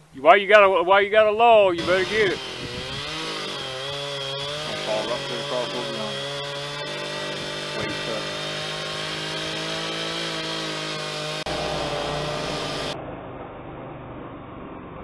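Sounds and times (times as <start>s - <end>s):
distant chainsaw running: 1.8s - 13.0s
low rumbling noise: 11.5s - 15.0s.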